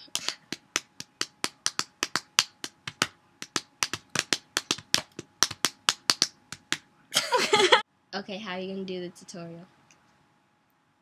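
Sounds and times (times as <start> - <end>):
fingers snapping: 0.0 - 6.8.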